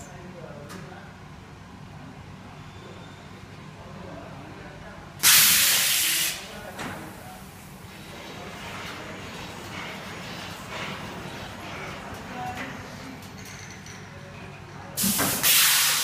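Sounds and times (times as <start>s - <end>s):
compressed air hissing: 5.2s - 6.6s, 15.0s - 16.0s.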